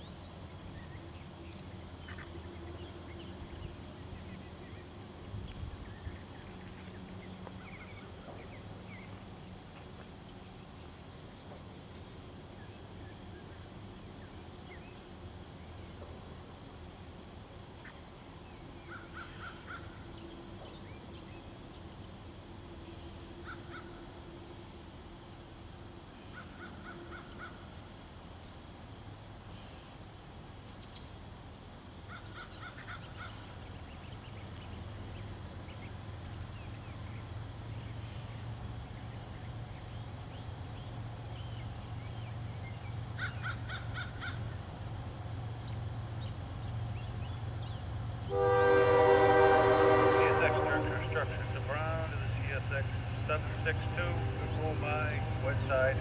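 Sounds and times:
diesel freight train rumble: 0:43.8 - 0:56.0.

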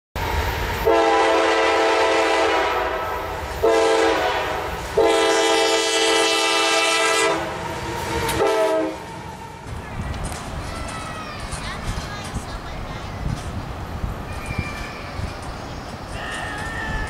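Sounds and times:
low rumble of train: 0:00.2 - 0:17.0
locomotive air horn blasts: 0:00.8 - 0:09.3.

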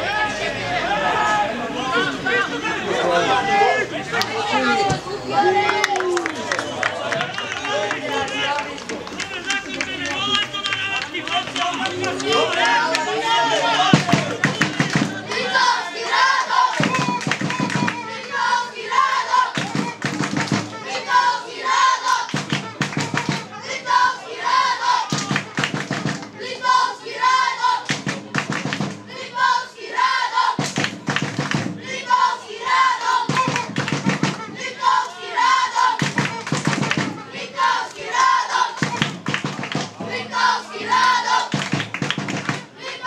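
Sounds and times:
crowd chanting: 0:00.0 - 0:43.0
rhythmic clapping: 0:05.6 - 0:23.6, 0:25.0 - 0:26.9, 0:27.6 - 0:29.6, 0:30.6 - 0:43.0.

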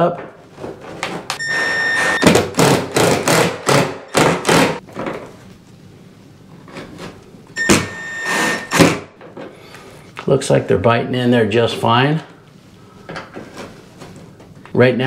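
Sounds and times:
impact driver driving screws: 0:01.9 - 0:04.8, 0:07.7 - 0:09.0.

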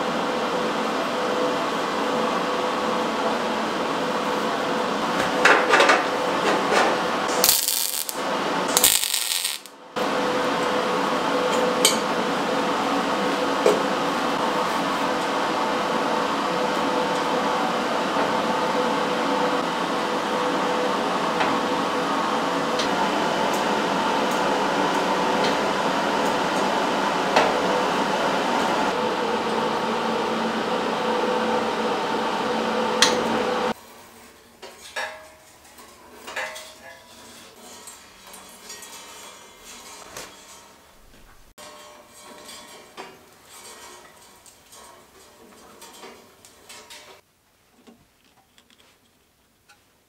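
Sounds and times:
electric chainsaw chain running: 0:07.4 - 0:09.7.

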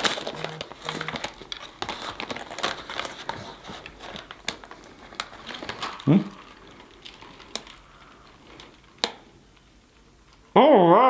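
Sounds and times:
chewing and crunching snacks: 0:00.0 - 0:10.4
paper wrappers crinkling: 0:00.0 - 0:10.5.

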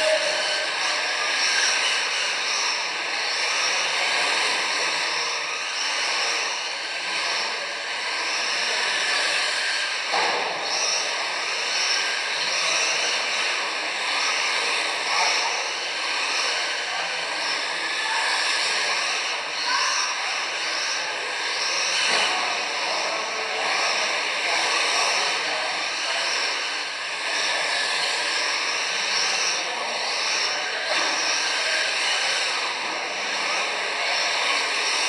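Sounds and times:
high whine of rc car motors: 0:00.0 - 0:35.0.

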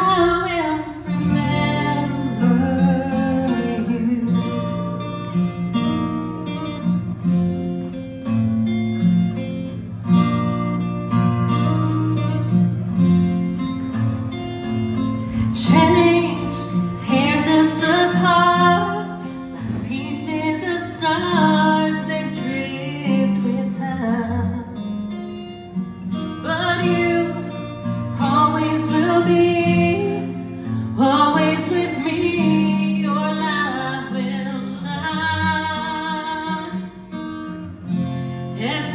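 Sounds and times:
woman singing: 0:00.0 - 0:05.2, 0:15.4 - 0:24.9, 0:26.3 - 0:37.2, 0:38.5 - 0:38.9
acoustic guitar: 0:00.0 - 0:38.9.

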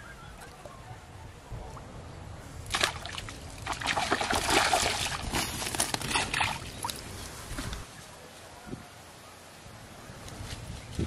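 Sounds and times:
fish splashing and thrashing in water: 0:02.6 - 0:07.8.

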